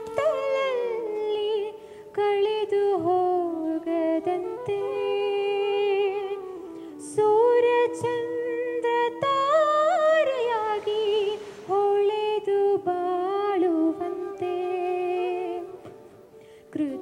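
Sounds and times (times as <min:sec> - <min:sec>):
woman singing unaccompanied: 0:00.0 - 0:16.1, 0:16.7 - 0:17.0.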